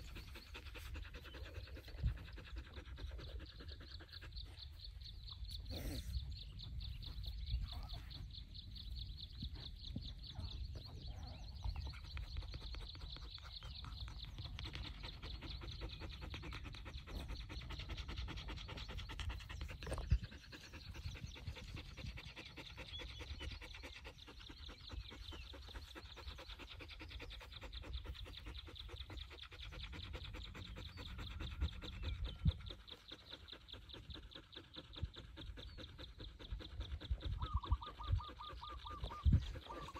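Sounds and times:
dog panting: 0.0s - 39.9s.

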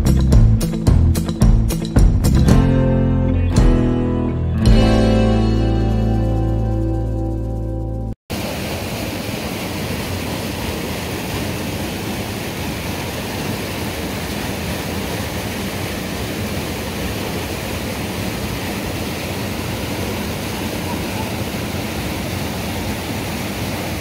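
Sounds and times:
guitar music: 0.0s - 8.2s
water rushing through culvert: 8.3s - 24.0s.

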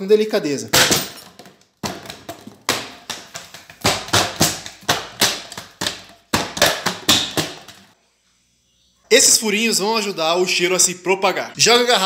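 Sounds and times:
plastic bottle cracking: 0.8s - 7.9s.

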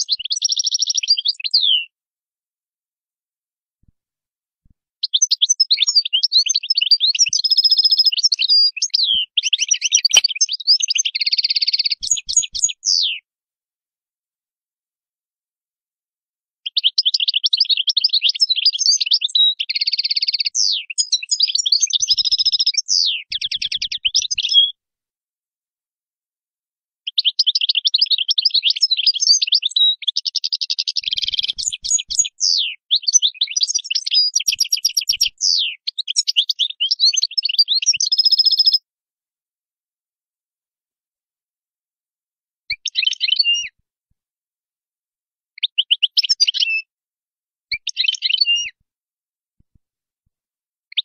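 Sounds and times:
bird twittering song: 0.0s - 1.9s, 5.0s - 13.2s, 16.7s - 24.7s, 27.1s - 38.8s, 42.8s - 43.6s, 45.6s - 46.8s.

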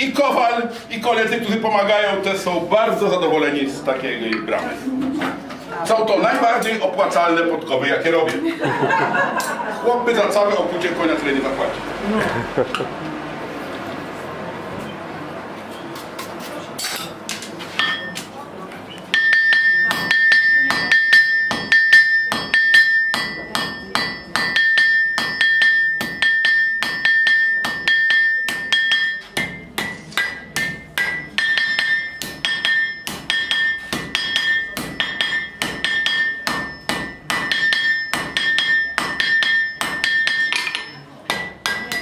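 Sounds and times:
hammer striking iron on anvil: 17.8s - 18.2s, 19.1s - 42.0s.

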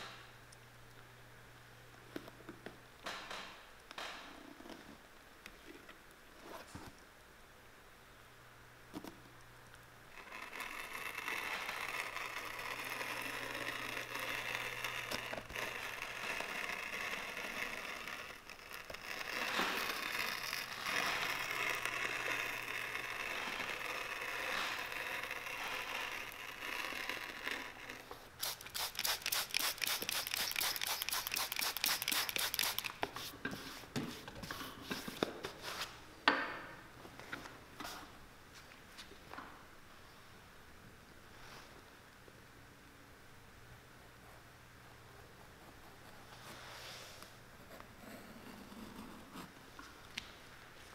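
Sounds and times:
cutter scraping leather: 10.2s - 32.9s.

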